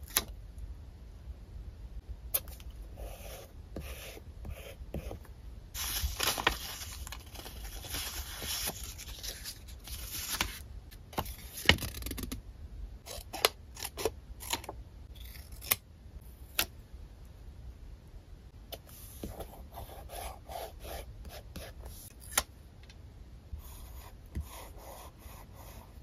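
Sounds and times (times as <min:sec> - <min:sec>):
paper rustling and sliding: 0:05.8 - 0:10.6.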